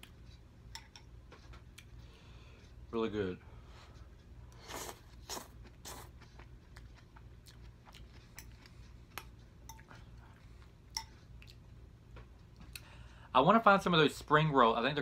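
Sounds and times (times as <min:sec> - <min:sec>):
chewing and mouth clicks: 0:04.5 - 0:12.9.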